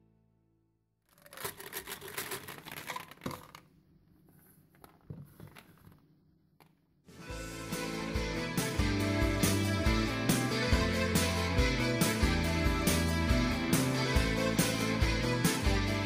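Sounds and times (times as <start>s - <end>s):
small objects clattering on wooden board: 1.1s - 3.7s
guitar music: 7.2s - 16.0s.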